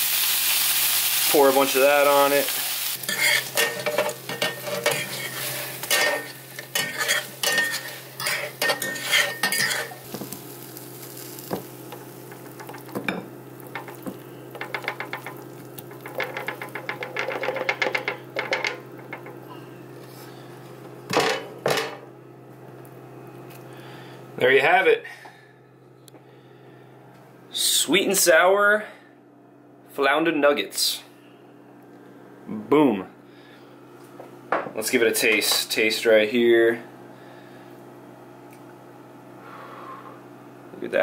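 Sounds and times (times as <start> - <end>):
light sizzle: 0.0 - 20.5
forks scraping a pan: 3.0 - 10.0.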